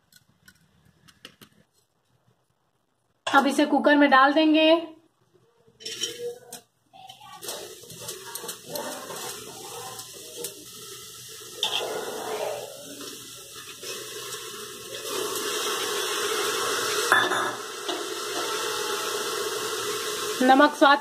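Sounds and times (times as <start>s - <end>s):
watery hiss: 7.5s - 20.6s.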